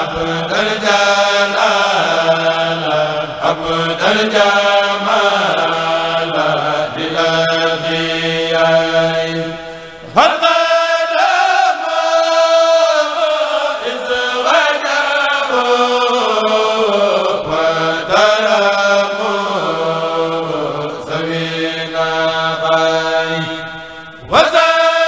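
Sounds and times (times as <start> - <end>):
men chanting in unison: 0.0 - 25.0.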